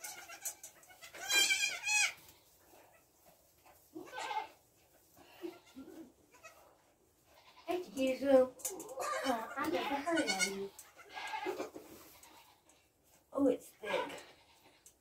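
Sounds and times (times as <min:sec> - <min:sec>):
goats bleating: 0:00.0 - 0:02.4, 0:04.0 - 0:04.6, 0:05.3 - 0:06.7, 0:07.3 - 0:07.8, 0:09.0 - 0:12.7.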